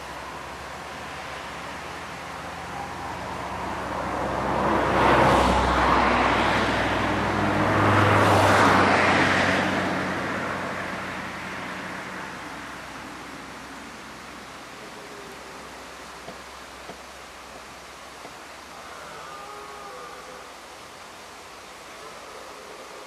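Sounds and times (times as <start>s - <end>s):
vehicle engine passing: 1.0s - 12.6s.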